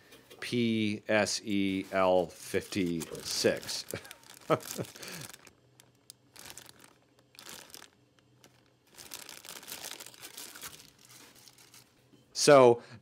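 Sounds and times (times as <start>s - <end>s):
plastic bag crinkling: 2.4s - 12.0s.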